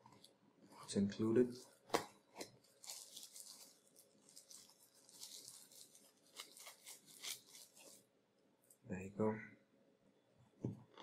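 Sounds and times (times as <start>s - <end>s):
plastic wrapper crinkling: 1.5s - 8.1s.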